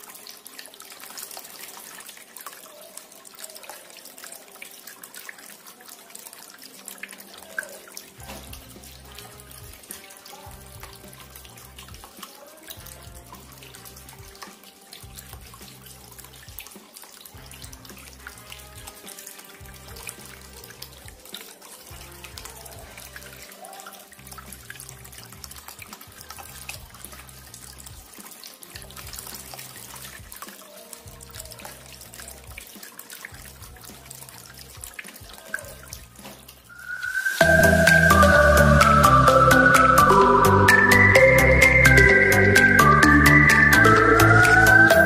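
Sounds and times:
fountain water splashing: 0.0 - 45.0
background music with bass: 8.2 - 9.9, 10.5 - 12.1, 12.8 - 14.4, 15.0 - 16.6, 17.4 - 19.0, 19.6 - 21.1, 37.4 - 45.0.

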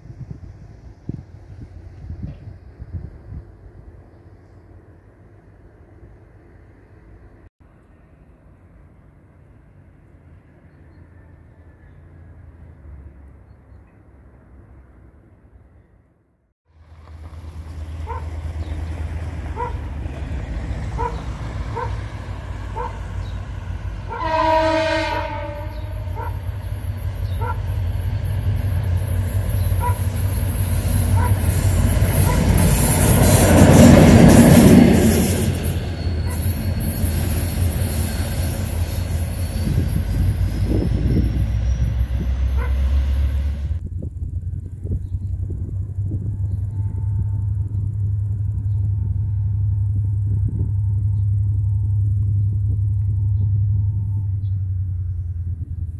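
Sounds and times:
diesel locomotive rumble: 0.0 - 15.6, 16.7 - 55.9
train horn blast: 20.8 - 28.6, 39.4 - 43.8, 46.2 - 47.8.

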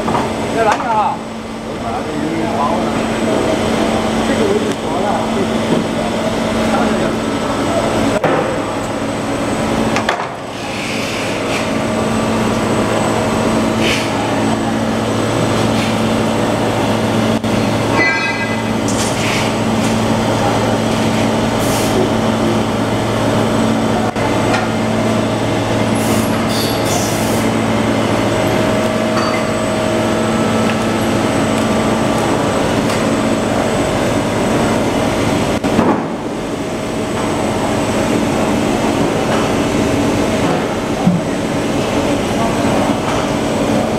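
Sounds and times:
machine humming: 0.0 - 43.9.

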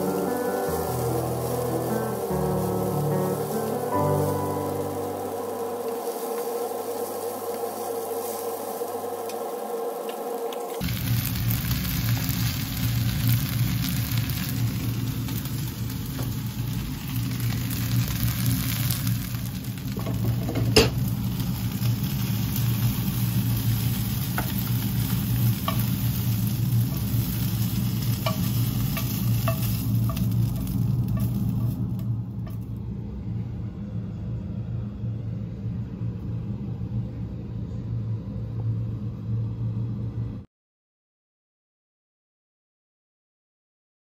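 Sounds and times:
noodles sizzling in a wok: 0.0 - 32.7
steady low hum: 0.0 - 40.5
utensil clinking against wok: 28.0 - 32.6.

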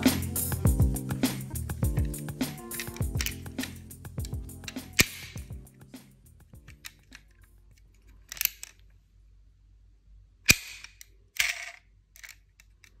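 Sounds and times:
toy car doors clicking: 2.0 - 3.4, 8.2 - 8.8.

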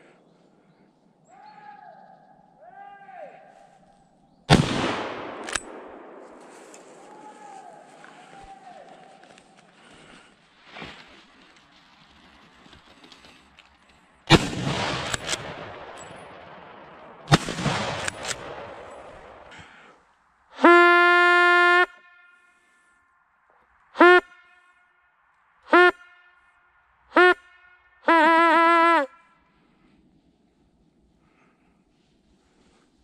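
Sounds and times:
echoing rifle shots: 4.5 - 6.6, 14.3 - 19.5
hunting horn blasts: 20.6 - 22.9, 23.9 - 29.6.

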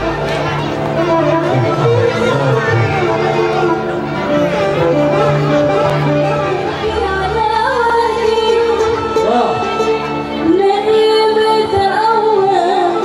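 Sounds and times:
gambus band music: 0.0 - 11.3
woman singing: 6.7 - 9.4, 10.3 - 13.0.

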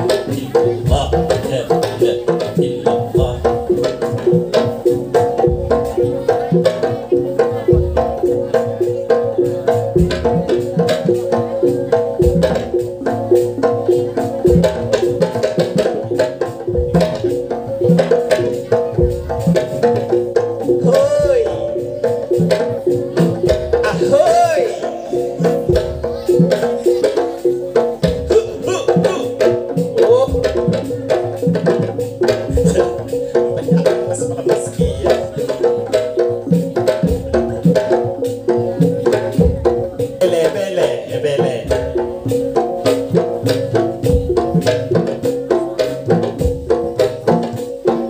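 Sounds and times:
percussion ensemble music: 0.0 - 48.0
quick steady drum strokes: 0.0 - 48.0
melody with sliding notes: 20.8 - 27.4.

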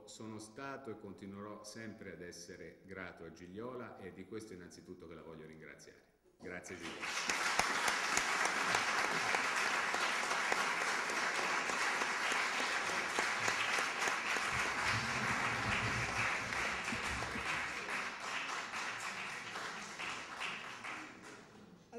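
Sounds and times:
audience applauding: 6.8 - 21.5.

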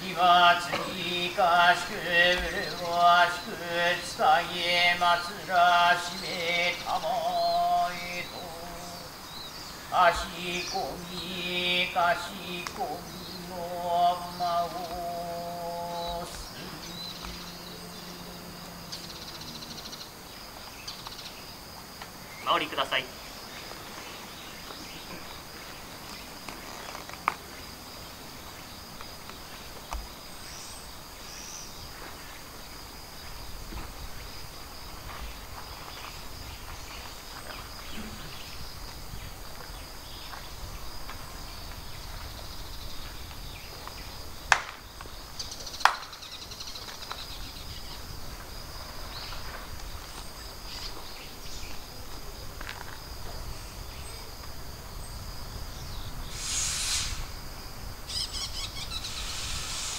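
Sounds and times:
insects chirring: 0.0 - 59.9
sharp loud cracks: 56.3 - 57.4.

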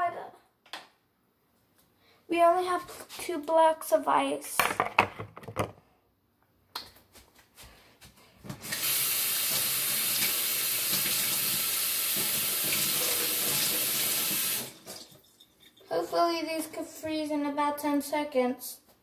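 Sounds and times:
plastic trays knocking: 4.6 - 5.8
kitchen faucet running: 8.6 - 15.9.

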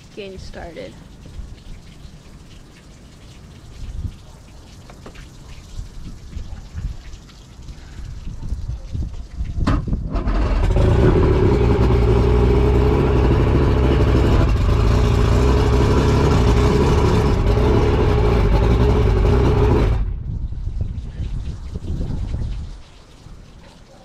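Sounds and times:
outboard motor idling: 10.1 - 20.1.

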